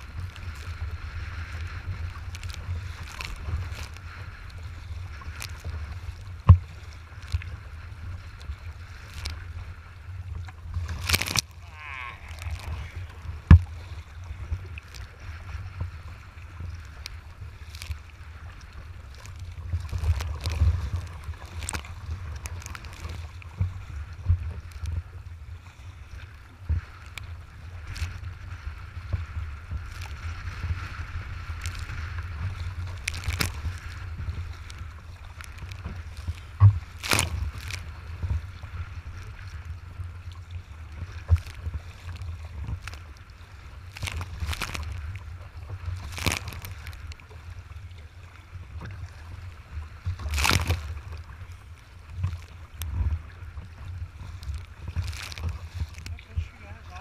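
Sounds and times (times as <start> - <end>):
wind buffeting microphone: 0.0 - 25.6
waves slapping against hull: 0.0 - 57.0
sharp splash or knock: 50.3 - 50.9.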